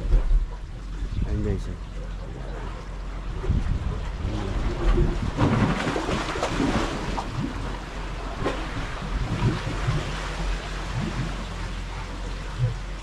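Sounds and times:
wind buffeting microphone: 2.4 - 13.0
sea water washing against blocks: 2.6 - 13.0.

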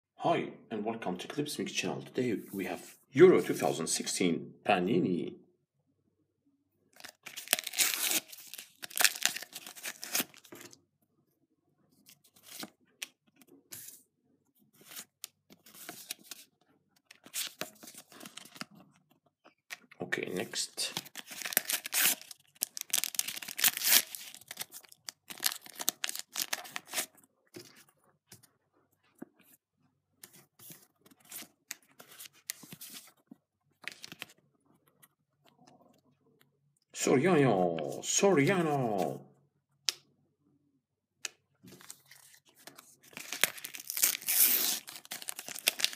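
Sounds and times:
sticker packet tearing open: 7.0 - 10.6, 21.0 - 27.2, 43.1 - 45.9
paper ripping and crinkling: 7.0 - 10.8, 17.1 - 18.8, 20.9 - 27.8, 41.7 - 45.9.

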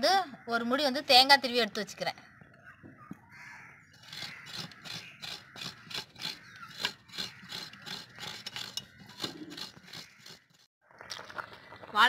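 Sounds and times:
coconut scraping on metal blade: 3.9 - 10.7.

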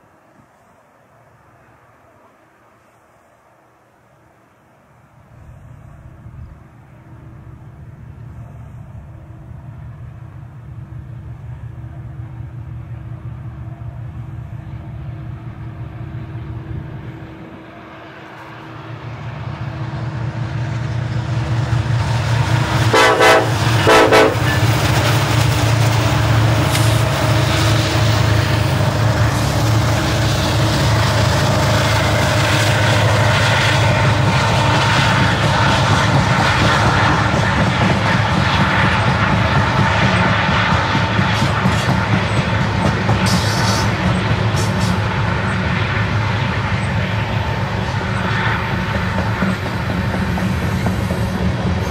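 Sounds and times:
train rolling: 0.0 - 51.9
diesel locomotive engines throbbing: 5.4 - 51.9
train horn blasts: 22.7 - 24.7, 43.2 - 45.3.

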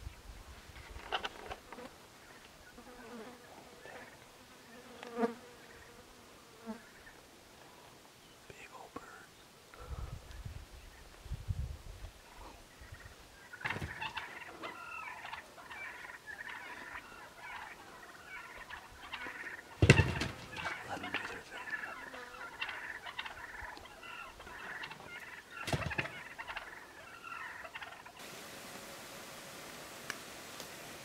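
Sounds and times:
turkeys gobbling: 12.7 - 28.3
wings flapping: 13.6 - 15.4, 18.6 - 22.0, 24.4 - 26.8.

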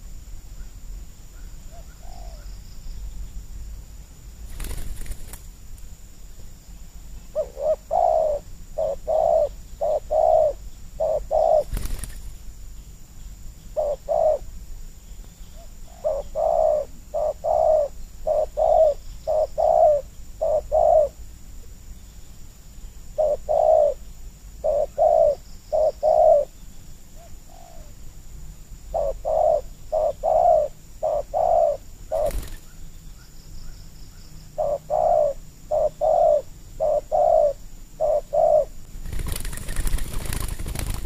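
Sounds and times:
dove cooing: 1.7 - 2.5, 7.3 - 12.1, 13.8 - 14.5, 15.6 - 21.2, 23.2 - 24.0, 24.6 - 26.5, 27.2 - 27.9, 28.9 - 32.8, 34.6 - 41.0.

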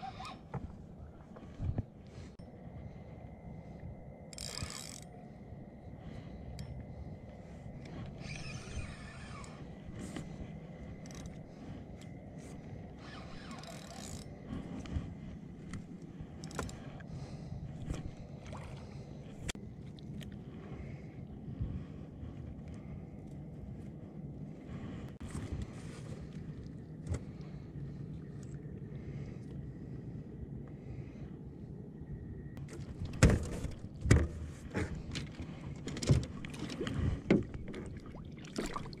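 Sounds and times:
fishing reel cranking and clicking: 4.3 - 5.1, 13.0 - 14.3, 16.4 - 16.8
water splashing: 36.4 - 39.0.

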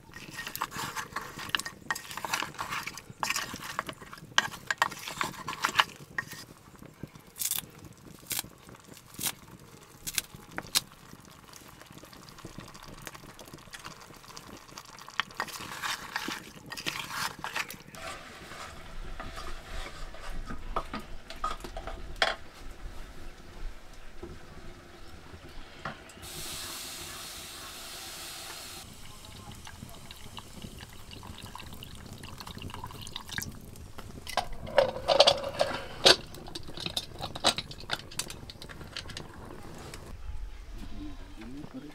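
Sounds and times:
spoon scraping and clinking pot: 0.0 - 6.5, 15.1 - 20.6, 34.3 - 39.3.

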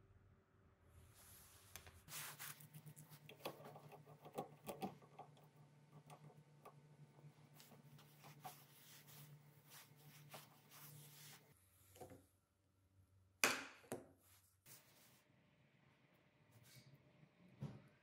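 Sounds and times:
pipe cutter clicking and scraping: 3.2 - 6.8.

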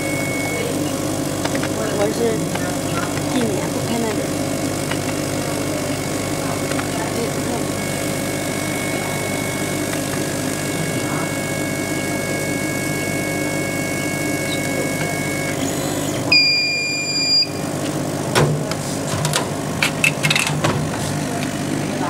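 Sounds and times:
machine beep: 0.0 - 4.2, 6.6 - 17.8
laser cutter humming and whining: 0.0 - 22.0.

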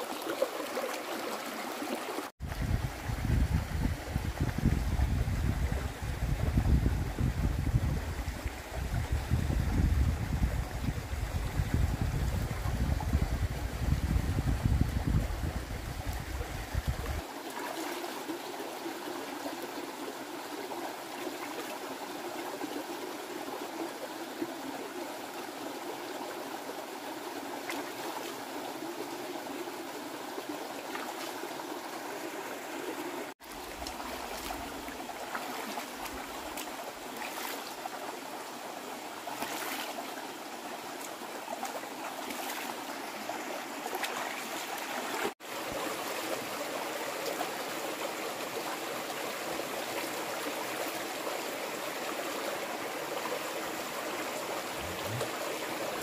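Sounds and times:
stream running over stones: 0.0 - 56.0.

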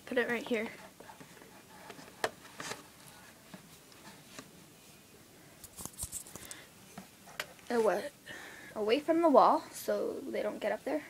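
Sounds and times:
rustling: 0.6 - 8.0.

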